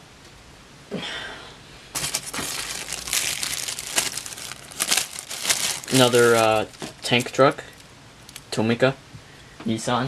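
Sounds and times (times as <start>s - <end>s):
foam packing peanuts rustling: 2.0s - 8.4s
plastic bag crinkling: 2.0s - 8.5s.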